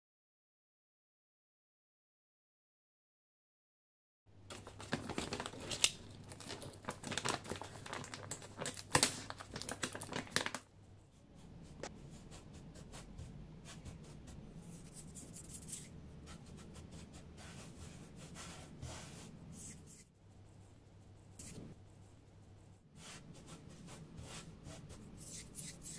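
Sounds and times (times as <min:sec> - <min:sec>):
plastic bag crinkling: 0:04.5 - 0:10.7.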